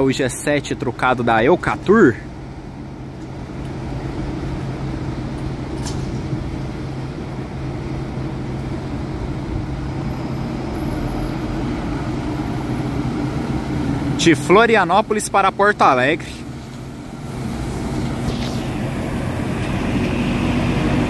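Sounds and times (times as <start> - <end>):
bus diesel engine running: 0.0 - 21.0
tyre noise on wet pavement: 15.9 - 21.0.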